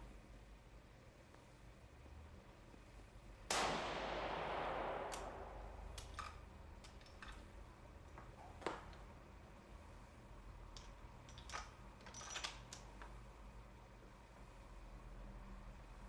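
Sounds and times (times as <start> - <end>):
rifle shot with echo: 3.5 - 6.8
rifle bolt clicks: 4.8 - 7.4.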